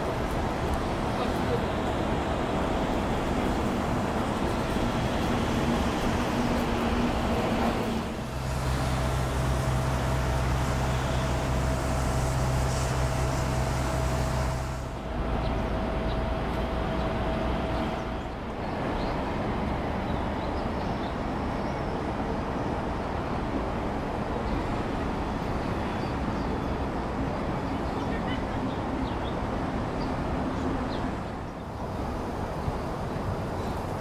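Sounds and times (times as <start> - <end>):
steady low engine hum: 0.0 - 18.7
steady background noise: 0.0 - 34.0.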